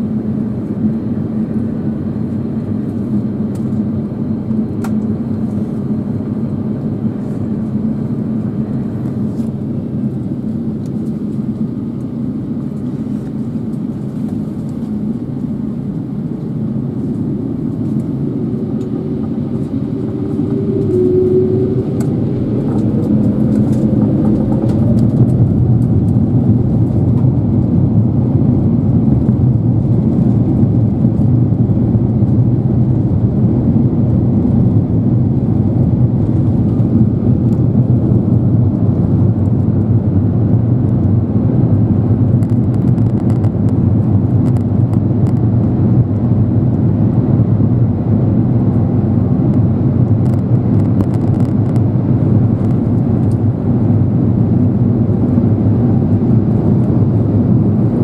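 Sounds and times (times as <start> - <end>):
airliner cabin rumble: 0.0 - 58.0
jet engines spooling up: 2.0 - 28.9.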